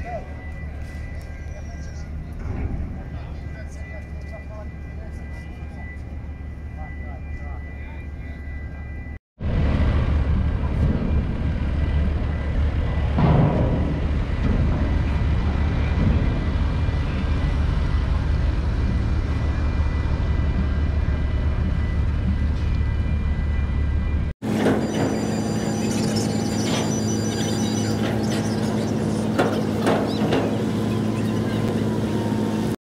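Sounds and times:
low rumble: 0:09.4 - 0:24.3.

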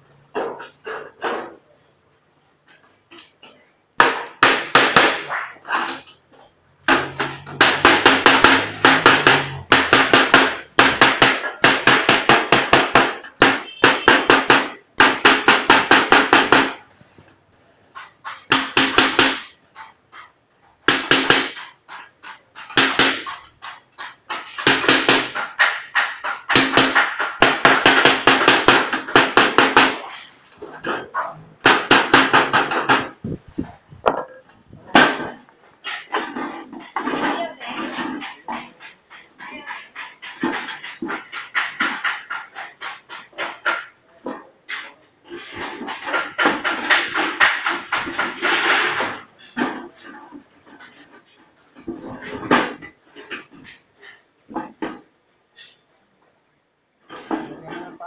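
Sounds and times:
hammer on sheet metal: 0:04.0 - 0:06.0, 0:06.8 - 0:16.8, 0:18.0 - 0:33.2, 0:44.7 - 0:50.0.

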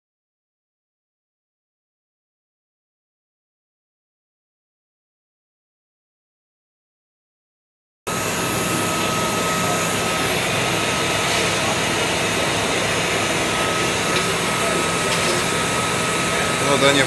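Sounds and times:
boiler blower whooshing: 0:08.1 - 0:17.0
thin steady whine: 0:08.1 - 0:17.0.

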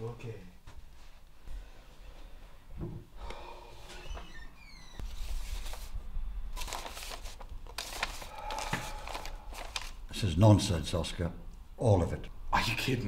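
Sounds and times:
paper rustling: 0:05.0 - 0:10.0.

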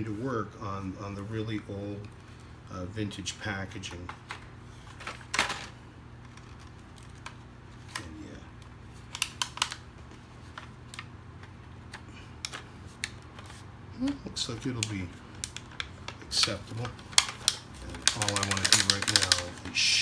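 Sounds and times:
low steady hum: 0:00.0 - 0:20.0
plastic blister pack crackling: 0:03.7 - 0:20.0.

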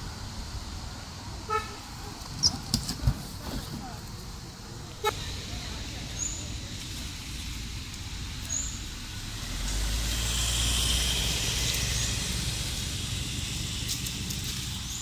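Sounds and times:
vehicle passing: 0:05.0 - 0:15.0.

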